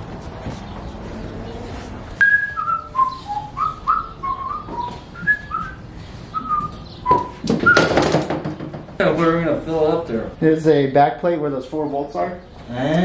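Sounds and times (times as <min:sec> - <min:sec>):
person whistling a tune: 0:02.2 - 0:08.0
sharp knocks: 0:07.1 - 0:09.0.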